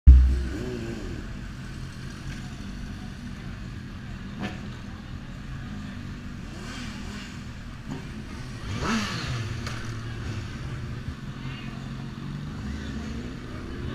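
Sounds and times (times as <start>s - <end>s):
motorcycle engine revving: 0.0s - 2.0s, 6.5s - 10.8s.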